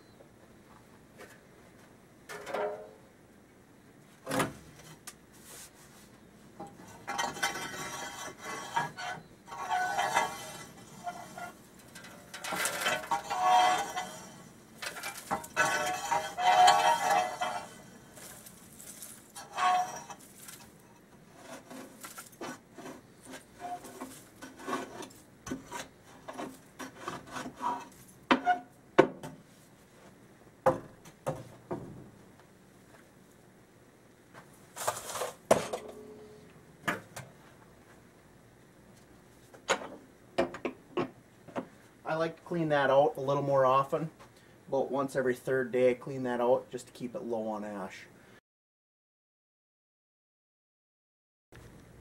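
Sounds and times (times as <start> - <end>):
metal rake scraping ash: 6.6 - 28.7.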